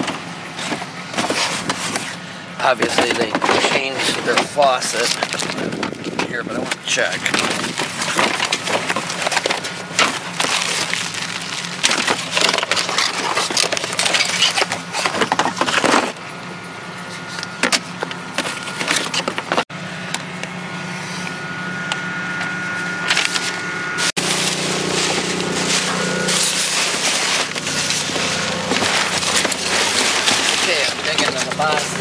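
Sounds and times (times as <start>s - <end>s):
paper and cardboard rustling: 0.0s - 2.2s, 2.8s - 16.2s, 24.1s - 32.0s
steady low hum: 0.0s - 32.0s.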